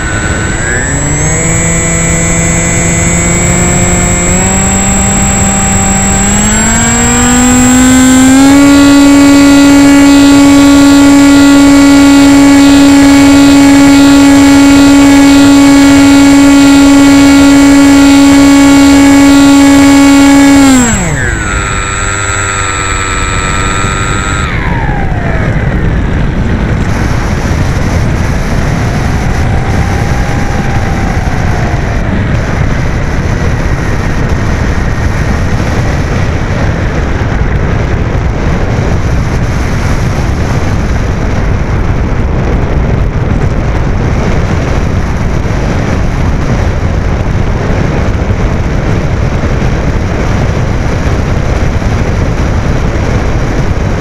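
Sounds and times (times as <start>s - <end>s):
electric motor and propeller whine: 0.0s - 54.0s
wind rushing over airframe: 0.0s - 54.0s.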